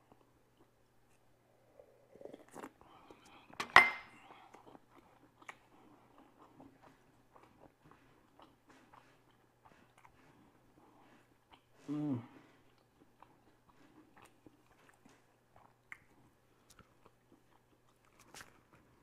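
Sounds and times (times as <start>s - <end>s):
chewing with wet mouth clicks: 0.0s - 1.2s, 4.2s - 11.8s, 12.6s - 19.0s.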